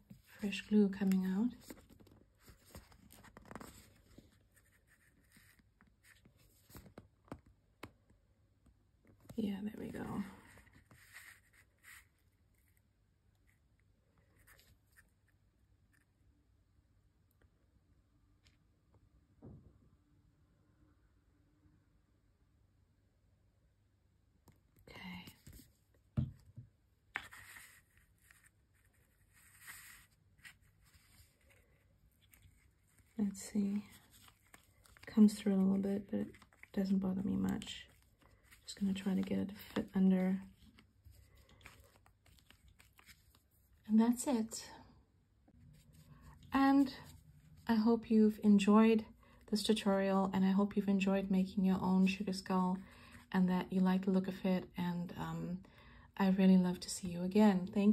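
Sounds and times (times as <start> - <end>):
plastic tube rustling: 1.5 - 7.1, 10.4 - 12.8, 25.4 - 43.8.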